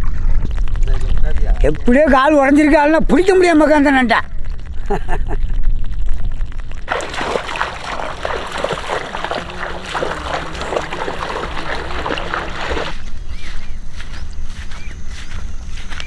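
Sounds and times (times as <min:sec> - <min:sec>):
feet wading through water: 0:06.9 - 0:13.7.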